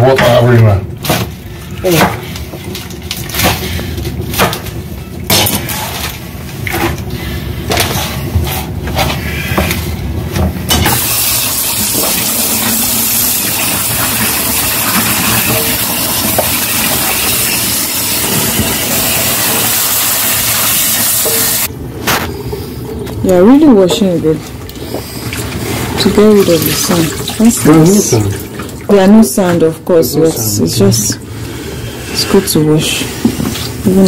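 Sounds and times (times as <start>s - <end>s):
water running into sink: 10.7s - 21.7s, 22.5s - 29.5s.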